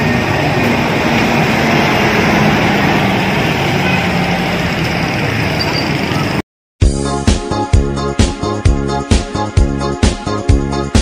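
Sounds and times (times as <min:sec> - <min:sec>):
bus diesel engine running: 0:00.0 - 0:06.4
street traffic noise: 0:00.0 - 0:06.4.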